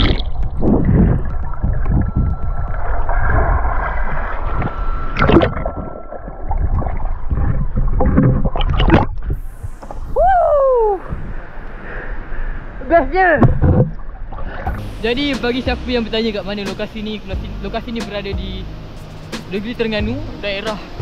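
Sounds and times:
crackling bubble bursts: 0:00.0 - 0:10.2
underwater water sloshing: 0:00.0 - 0:10.2, 0:11.0 - 0:14.9.

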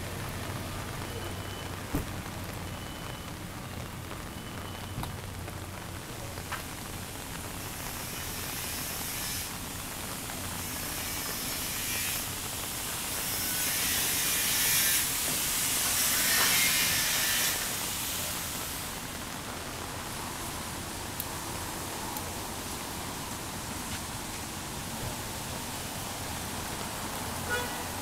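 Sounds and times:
steady rain: 0:00.0 - 0:28.0
spraying hiss: 0:06.6 - 0:19.2.

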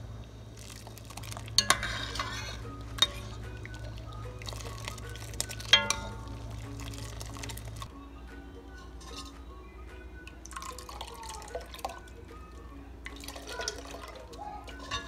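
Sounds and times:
ladle stirring sauce: 0:00.6 - 0:07.9, 0:08.7 - 0:09.6, 0:10.2 - 0:15.0
ladle clinking against pot: 0:01.6 - 0:03.8, 0:04.4 - 0:07.2, 0:08.8 - 0:09.5, 0:13.1 - 0:15.0.

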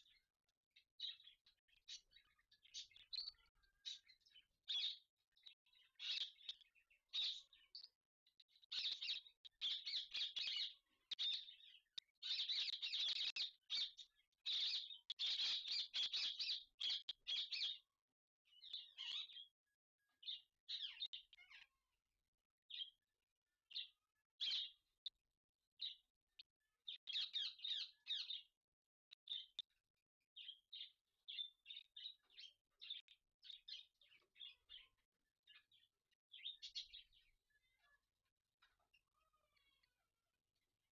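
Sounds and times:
parakeets chirping chatter: 0:01.0 - 0:07.8, 0:08.4 - 0:17.8, 0:18.5 - 0:19.4, 0:23.7 - 0:24.8, 0:26.9 - 0:28.5, 0:30.4 - 0:37.9.

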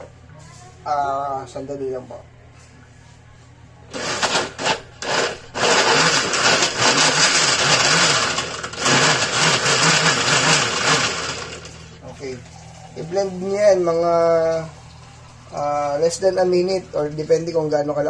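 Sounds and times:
blender chopping lemon in water: 0:04.0 - 0:11.8.

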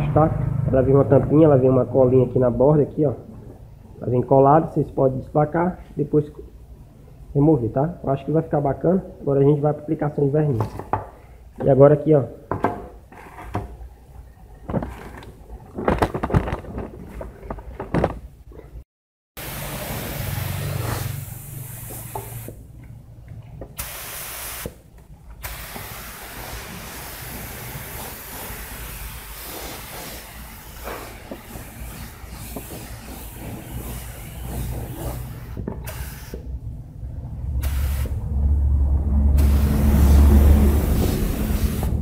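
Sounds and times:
plastic parts knocking: 0:14.6 - 0:18.7
spray gun hissing: 0:19.4 - 0:22.6, 0:23.8 - 0:24.7, 0:25.4 - 0:36.4, 0:37.6 - 0:38.2, 0:39.4 - 0:42.0.

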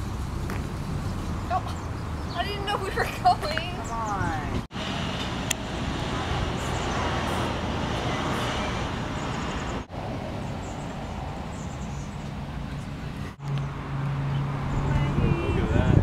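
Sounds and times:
road traffic passing: 0:00.0 - 0:16.0.

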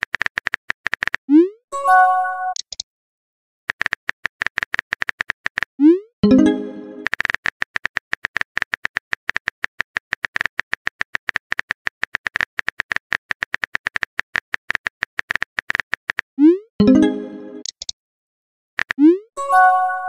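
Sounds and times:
keyboard typing clicks: 0:00.0 - 0:01.2, 0:02.5 - 0:02.8, 0:03.7 - 0:16.2, 0:16.8 - 0:18.0.

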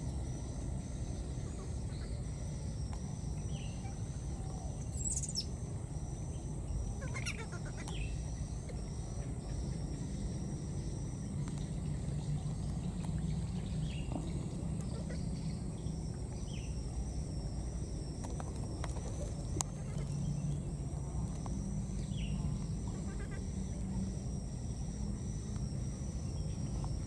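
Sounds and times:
falling chirps: 0:03.4 - 0:05.6.

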